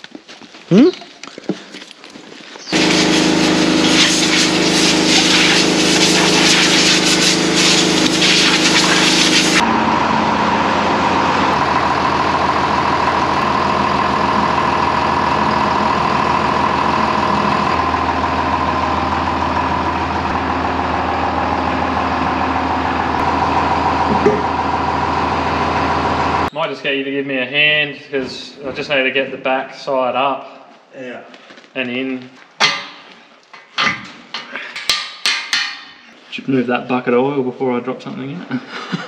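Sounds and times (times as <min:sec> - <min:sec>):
tractor diesel engine running: 0:02.7 - 0:26.5.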